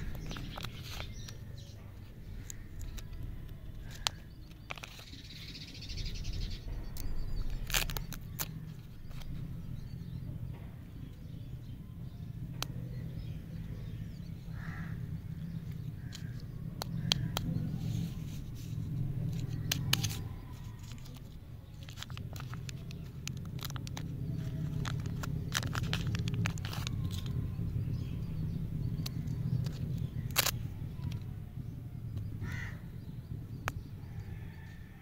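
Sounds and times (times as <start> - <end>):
low rumble: 0.0 - 35.0
candy wrappers crinkling: 7.4 - 9.2, 19.1 - 27.4, 29.0 - 31.2.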